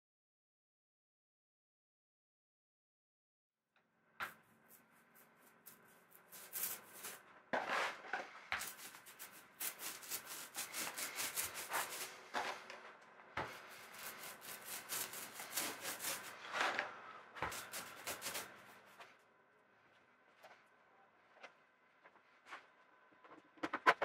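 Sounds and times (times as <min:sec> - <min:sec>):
scratchy paintbrush strokes: 0:04.2 - 0:19.1.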